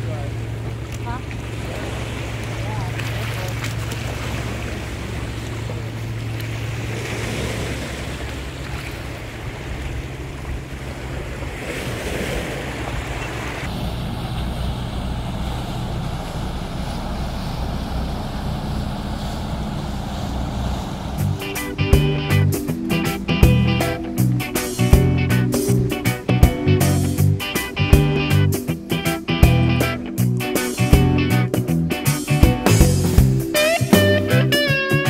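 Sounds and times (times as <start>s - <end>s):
boat engines droning: 0.0s - 35.0s
low hum: 12.6s - 33.5s
plucked string music: 21.1s - 35.0s.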